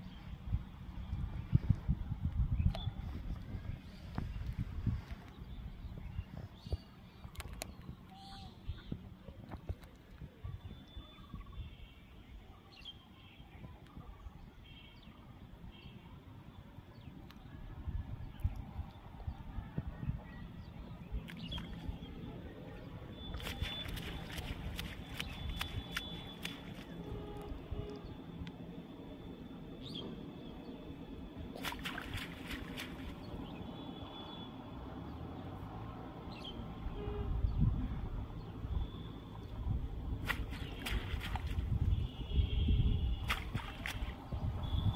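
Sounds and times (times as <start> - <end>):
splashes and drips: 6.6 - 11.0, 21.1 - 28.6, 31.4 - 33.9, 39.0 - 44.9
net sloshing through water: 23.1 - 27.5, 31.5 - 33.3, 40.2 - 41.9, 43.2 - 44.3.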